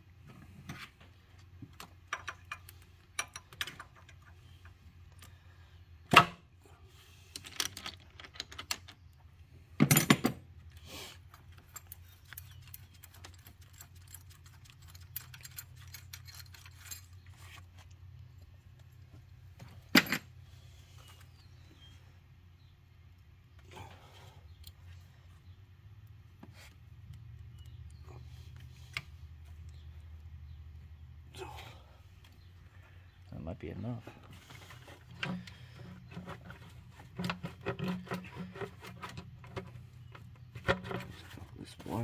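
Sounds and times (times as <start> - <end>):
metal tools clicking and scraping: 1.8 - 5.4, 11.2 - 19.0.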